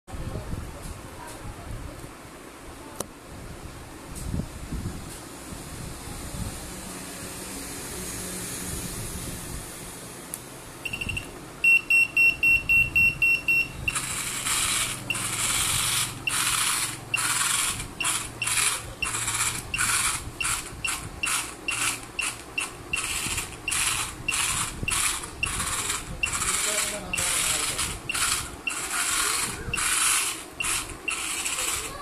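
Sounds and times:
electronic buzzer beeping: 0:10.8 - 0:31.8
small gear motors whirring: 0:12.2 - 0:32.0.

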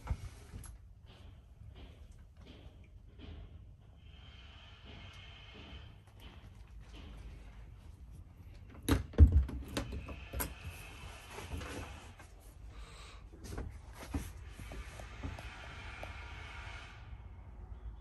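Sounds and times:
knocks and clunks: 0:04.9 - 0:10.6.

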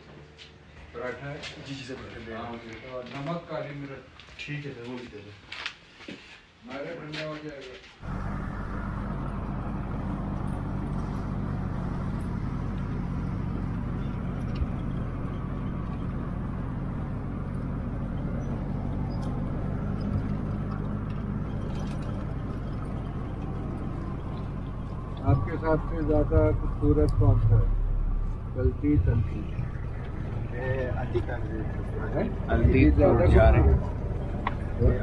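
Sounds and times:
road noise: 0:00.0 - 0:35.0
jeep engine humming: 0:08.0 - 0:35.0.

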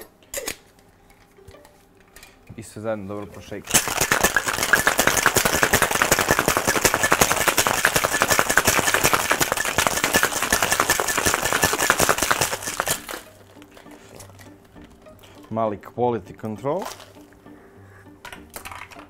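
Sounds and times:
ice rattling in cocktail shaker: 0:03.7 - 0:13.3.

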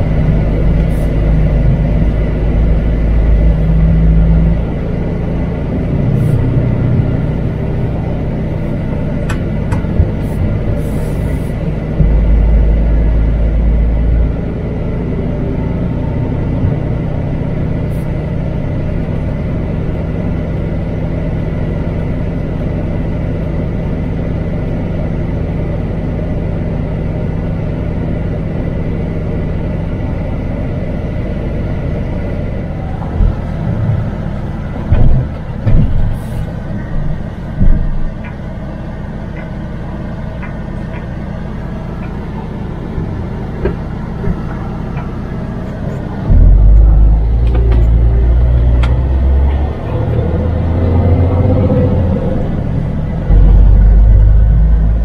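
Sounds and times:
road noise: 0:00.0 - 0:55.0
truck diesel engine running: 0:00.0 - 0:55.0
loud low thumps: 0:11.9 - 0:14.4, 0:46.3 - 0:49.3, 0:53.2 - 0:55.0.

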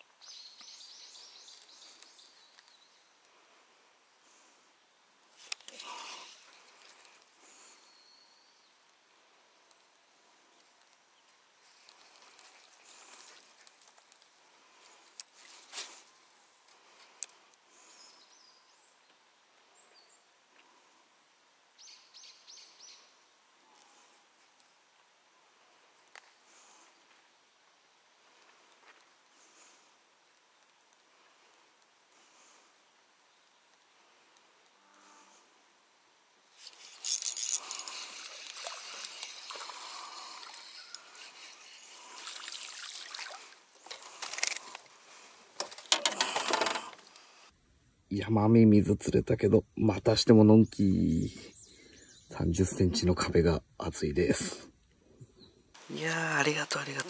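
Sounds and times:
faint high bird chirps: 0:07.8 - 0:08.8, 0:39.3 - 0:42.2
fish splashing in water: 0:37.6 - 0:44.7.

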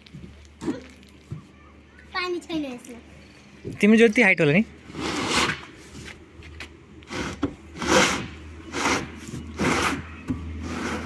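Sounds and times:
plastic scraping on plastic: 0:04.9 - 0:11.0.

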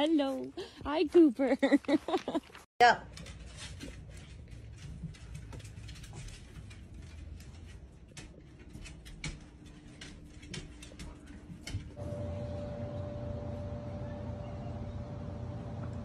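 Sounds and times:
dog claws clicking on tile floor: 0:02.3 - 0:12.0
steady hum: 0:12.0 - 0:16.0.

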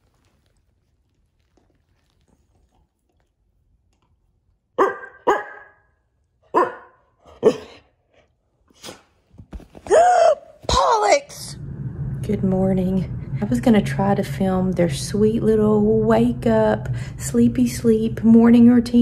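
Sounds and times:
dog barking: 0:04.8 - 0:05.9, 0:06.5 - 0:07.8.

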